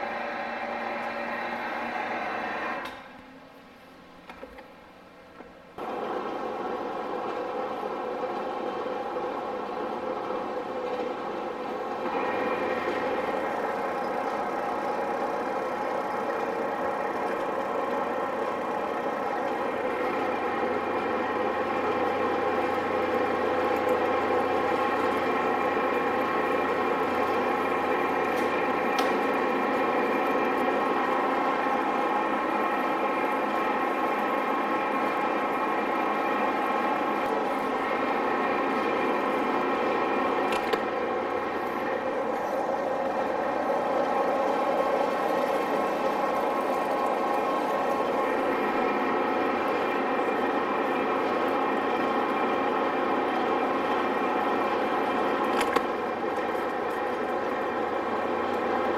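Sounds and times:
click: 0:02.8 - 0:03.1.

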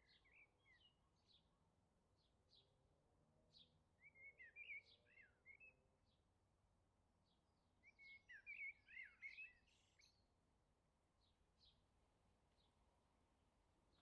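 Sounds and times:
songbird chirping: 0:00.0 - 0:01.6, 0:03.6 - 0:05.8, 0:07.3 - 0:10.4.

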